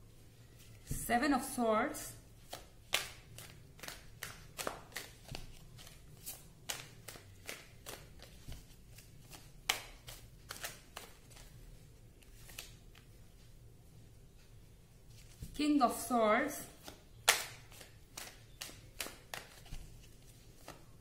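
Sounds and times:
cards being shuffled: 2.4s - 13.2s, 16.6s - 21.0s.

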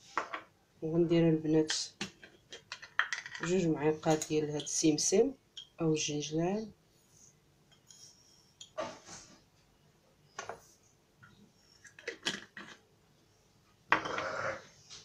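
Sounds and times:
metal spoon clinking on glass: 3.3s - 4.8s, 5.5s - 5.8s.

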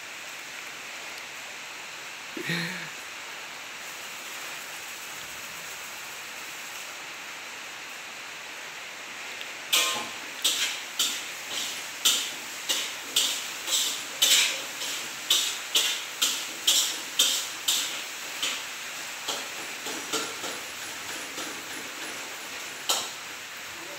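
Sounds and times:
metal spatula clanking on wok: 9.7s - 18.6s.

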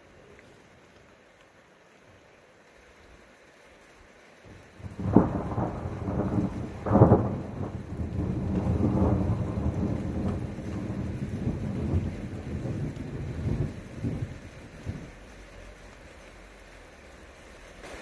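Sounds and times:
thunder clap: 4.8s - 15.2s
low thunder rumble: 4.8s - 15.5s.

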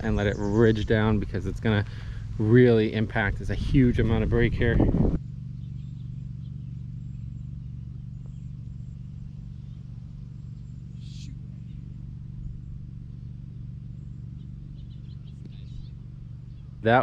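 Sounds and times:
low outdoor rumble: 0.0s - 17.0s
faint high bird chirps: 5.5s - 16.9s.

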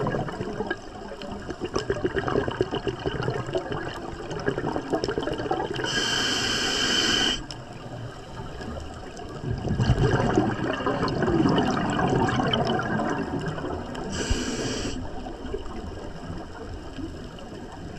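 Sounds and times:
bubbling exhale: 1.4s - 7.5s, 9.4s - 15.3s
regulator inhale hiss: 5.8s - 7.6s, 14.0s - 15.2s.

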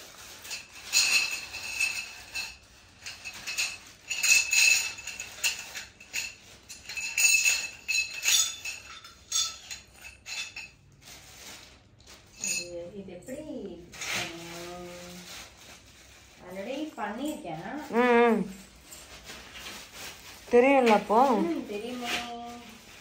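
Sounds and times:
hard objects clinking and rattling: 0.0s - 23.0s.

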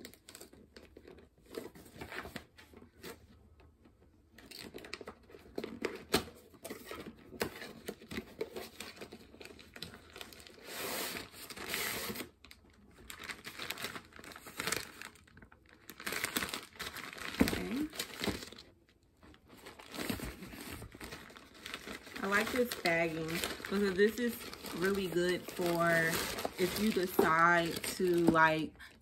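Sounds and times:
cardboard scraping and tearing: 5.6s - 12.4s, 19.6s - 28.6s.

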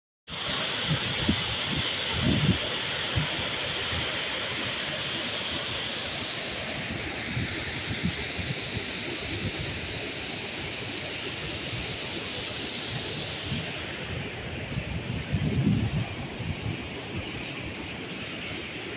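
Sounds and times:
waterfall rushing: 0.3s - 18.9s
wind buffeting microphone: 13.4s - 17.8s.

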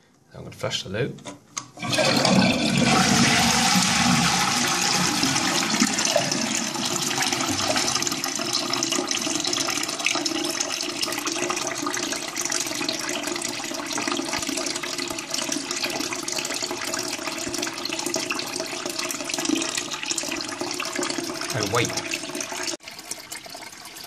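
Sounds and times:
cistern refilling with water: 1.8s - 24.0s
toilet flushing: 1.8s - 24.0s.

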